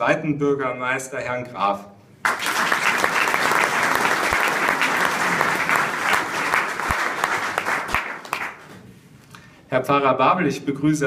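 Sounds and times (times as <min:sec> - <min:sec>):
audience applauding: 0:02.2 - 0:08.8.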